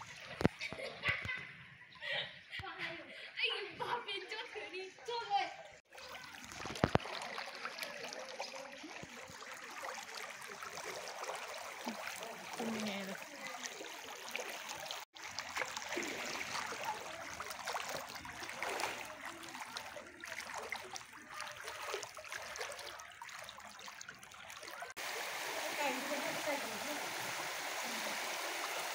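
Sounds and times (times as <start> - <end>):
floodwater rushing and splashing: 5.9 - 28.9.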